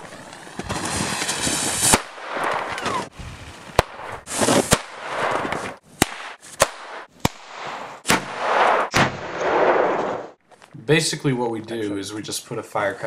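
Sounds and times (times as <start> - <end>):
firecracker bangs: 0.6 - 3.1, 3.8 - 10.4.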